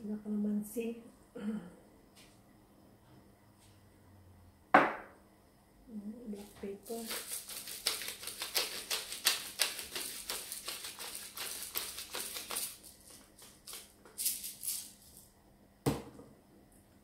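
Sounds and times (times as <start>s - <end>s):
pepper mill grinding: 6.4s - 15.3s.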